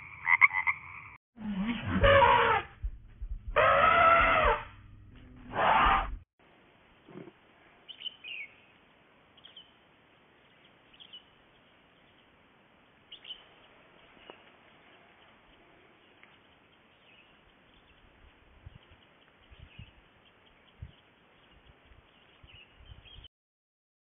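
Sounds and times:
loud animal calls: 0:00.0 - 0:02.8, 0:03.5 - 0:04.8.

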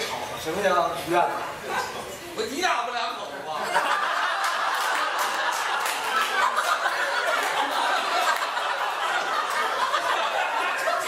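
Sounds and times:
crowd laughing: 0:03.6 - 0:11.0.

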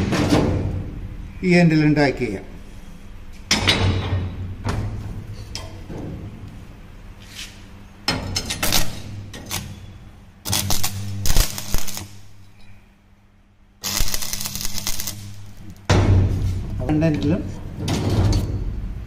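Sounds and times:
low electrical hum: 0:00.0 - 0:19.0
welding arc crackling: 0:08.6 - 0:12.5, 0:13.8 - 0:15.9.

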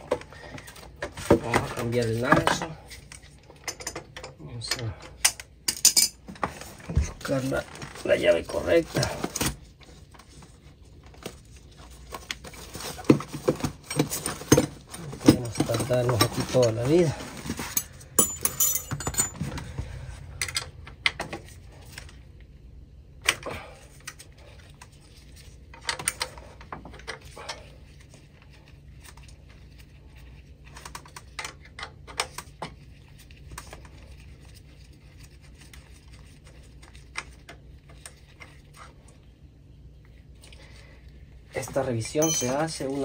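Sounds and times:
low hum: 0:17.1 - 0:25.6.

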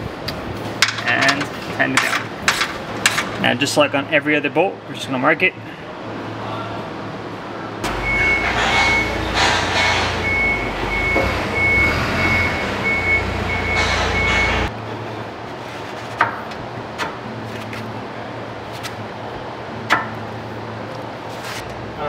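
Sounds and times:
high electronic beeping: 0:07.8 - 0:09.4, 0:10.1 - 0:14.7
low engine rumble: 0:07.8 - 0:15.4.

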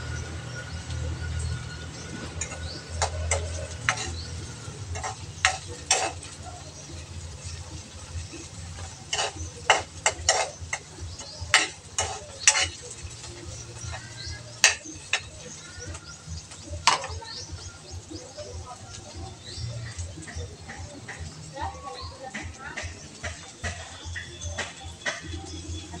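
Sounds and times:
utensil scraping and clacking wok: 0:00.0 - 0:26.0.

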